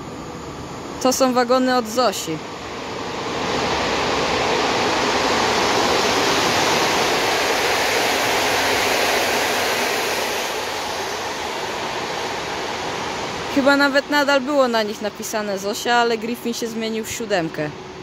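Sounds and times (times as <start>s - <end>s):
train wheels rushing on rail: 3.0s - 14.5s.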